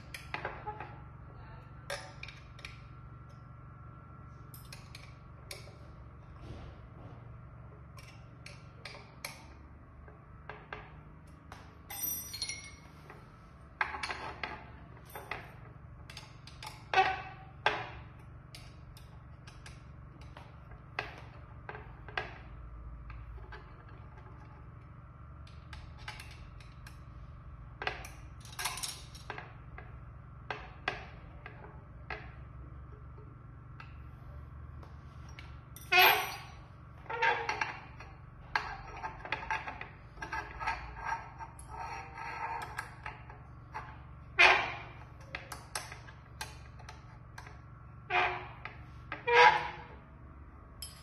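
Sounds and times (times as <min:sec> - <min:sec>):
metal parts clicking and clinking: 0:11.5 - 0:22.5, 0:25.4 - 0:27.1, 0:27.8 - 0:29.9, 0:35.3 - 0:49.9, 0:50.8 - 0:51.0.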